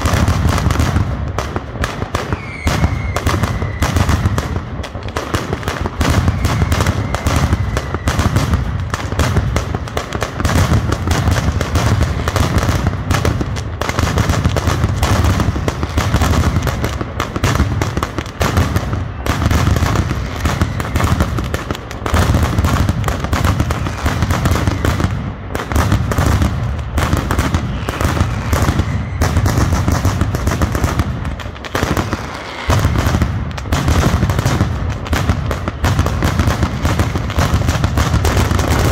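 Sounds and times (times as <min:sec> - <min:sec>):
firecrackers banging: 0:00.0 - 0:38.9.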